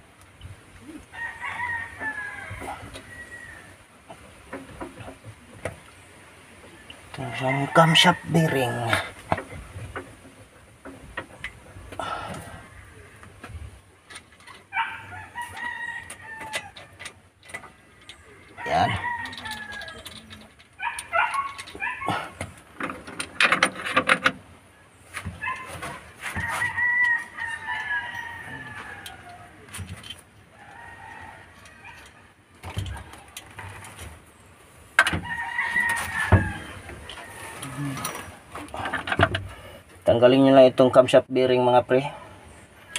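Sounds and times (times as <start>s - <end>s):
rooster crowing: 1.1s - 3.8s, 14.7s - 17.8s, 18.4s - 20.2s, 25.4s - 29.7s, 30.5s - 32.4s, 35.0s - 38.2s.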